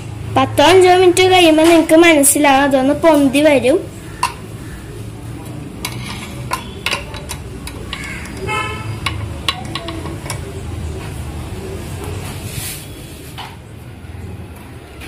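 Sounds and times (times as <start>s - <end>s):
metal pot and lid clinking: 4.2s - 4.5s, 5.8s - 10.6s
sharp metallic taps: 4.2s - 4.5s, 5.8s - 10.5s.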